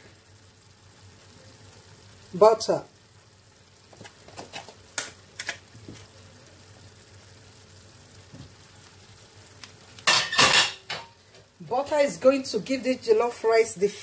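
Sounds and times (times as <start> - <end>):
butter sizzling in hot pot: 0.0 - 14.0.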